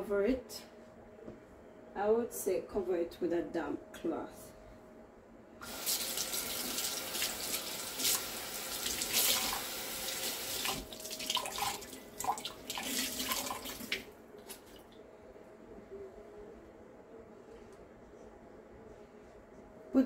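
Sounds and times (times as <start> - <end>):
kitchen tap running: 5.6 - 14.1.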